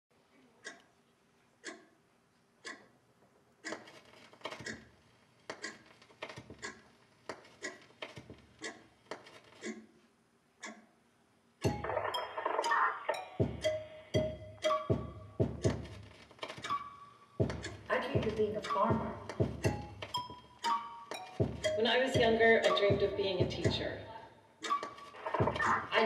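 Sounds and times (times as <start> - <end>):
clock-like ticking: 0.6 - 0.9, 1.6 - 2.0, 2.6 - 3.0, 3.6 - 9.9, 10.6 - 10.9, 11.6 - 26.0
loud music: 11.6 - 16.0, 21.3 - 24.2, 25.2 - 26.0
knocks and low thuds: 13.4 - 13.6, 14.2 - 16.0, 17.4 - 20.1, 21.4 - 24.0, 25.4 - 26.0.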